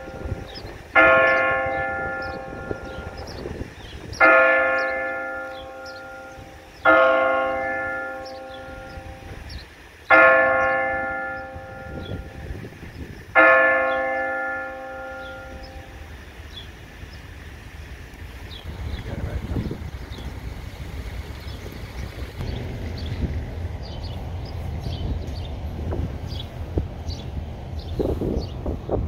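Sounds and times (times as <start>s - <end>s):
electronic church bell tolling: 0.0s - 3.5s, 4.2s - 9.4s, 10.1s - 12.6s, 13.4s - 16.1s.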